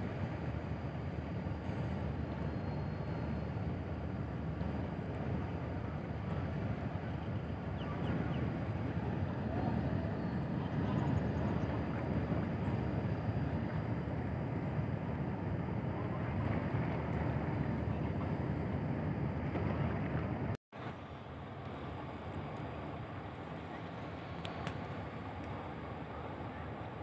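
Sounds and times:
wind buffeting microphone: 0.0s - 20.6s.

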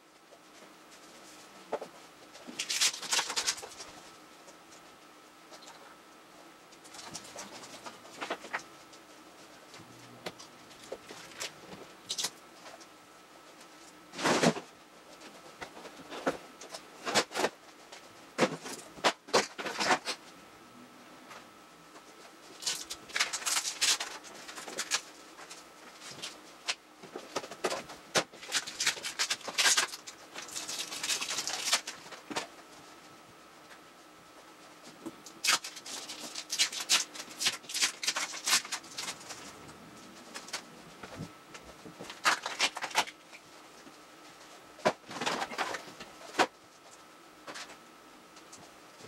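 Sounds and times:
paper rustling: 0.5s - 4.9s, 22.2s - 33.0s, 35.3s - 47.8s.

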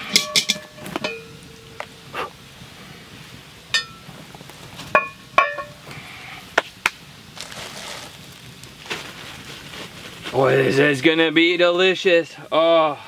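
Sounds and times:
metal pan clanking: 0.0s - 1.7s, 4.9s - 5.8s
plastic bag rustling: 7.3s - 10.9s.

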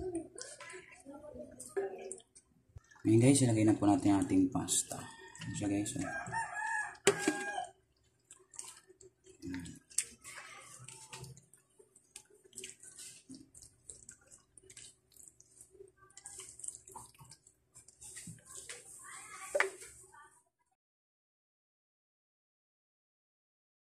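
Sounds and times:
pasta squelching in sauce: 5.0s - 19.8s.

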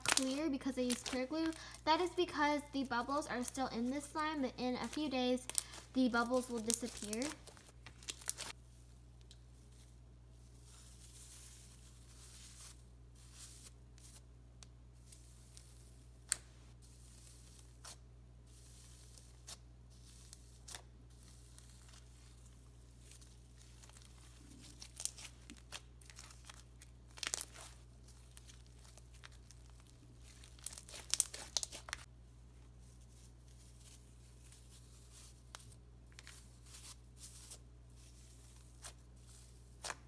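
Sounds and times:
slime clicks and crinkles: 0.0s - 1.8s, 4.8s - 8.6s, 21.5s - 32.1s.

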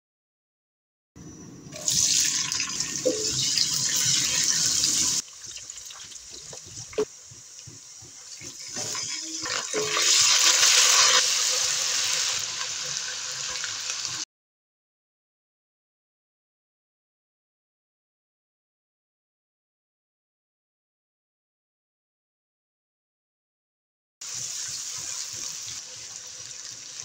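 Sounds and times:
onions sizzling in oil: 1.7s - 14.2s, 24.2s - 27.0s.

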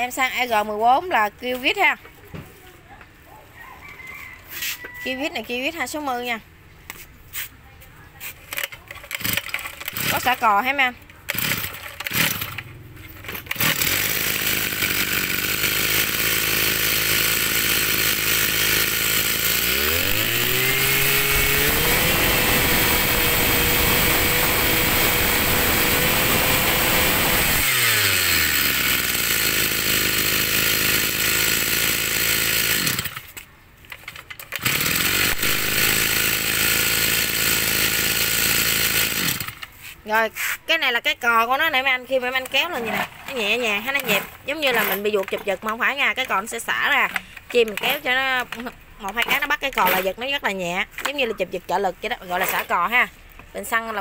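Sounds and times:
brush cutter engine revving: 8.2s - 33.4s, 34.0s - 40.6s, 42.3s - 45.4s, 52.3s - 53.2s.

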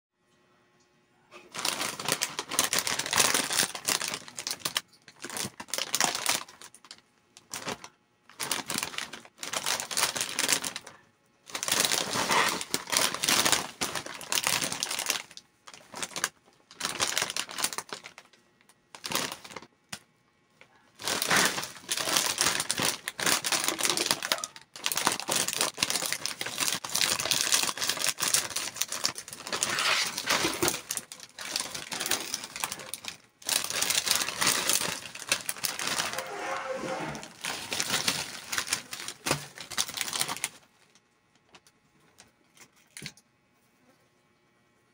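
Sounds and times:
plastic snack bag crinkling: 1.4s - 20.0s, 20.7s - 36.4s, 37.2s - 43.1s
scissors cutting plastic bag: 1.5s - 10.9s, 11.5s - 18.2s, 19.0s - 19.7s, 21.0s - 36.3s, 37.2s - 40.6s.

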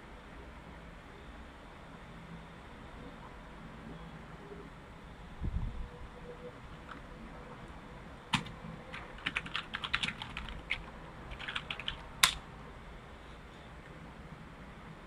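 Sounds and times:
typing on keyboard: 8.3s - 12.4s.

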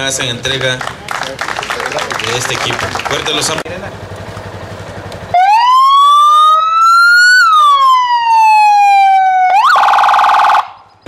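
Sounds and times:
police siren wailing: 5.3s - 10.8s
police siren yelping: 5.3s - 10.9s.

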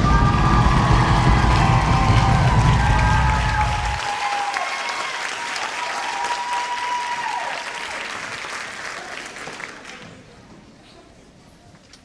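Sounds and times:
music: 0.0s - 4.0s
audience applauding and cheering: 0.0s - 10.2s.

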